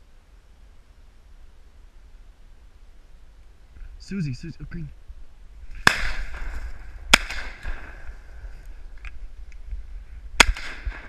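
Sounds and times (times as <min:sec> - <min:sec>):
shotgun shots echoing: 0:05.8 - 0:08.2, 0:10.4 - 0:11.0.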